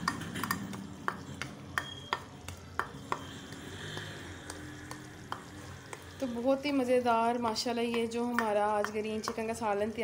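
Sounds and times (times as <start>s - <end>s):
sharp clicks and taps: 0.0s - 6.1s
gravy sizzling in a pot: 0.0s - 10.0s.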